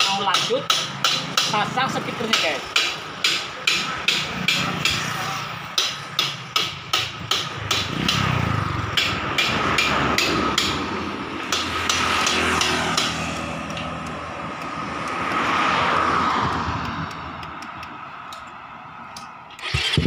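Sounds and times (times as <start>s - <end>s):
motorcycle engine running: 6.7s - 14.4s, 19.6s - 20.0s.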